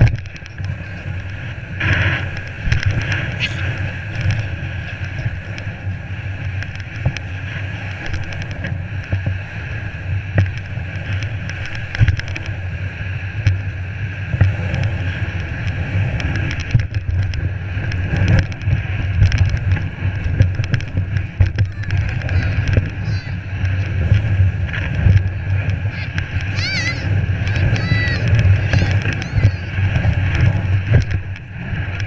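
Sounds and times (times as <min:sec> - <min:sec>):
sled running through deep snow: 0:00.0 - 0:32.0
knocks and bumps: 0:19.2 - 0:31.4.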